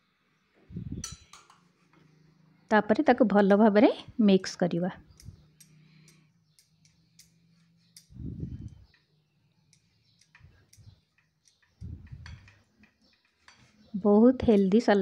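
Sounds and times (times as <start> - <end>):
spoon tapping glass bowl: 1.0 - 1.6.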